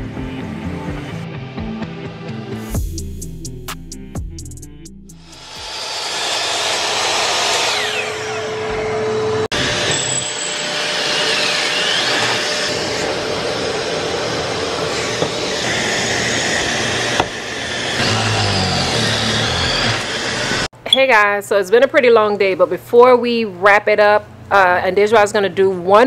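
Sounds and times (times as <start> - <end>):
dust extractor running: 5.4 - 20.7
drill boring into plywood: 5.5 - 20.7.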